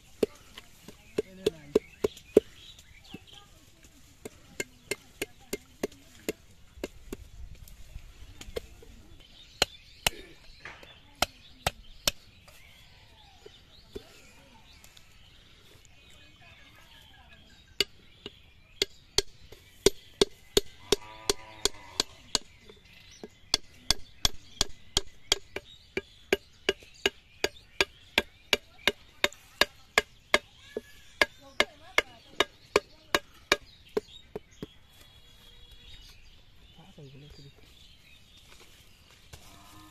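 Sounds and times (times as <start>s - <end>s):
machete chopping coconut: 0.2s - 2.6s, 9.6s - 12.3s, 18.8s - 30.5s, 31.2s - 34.5s.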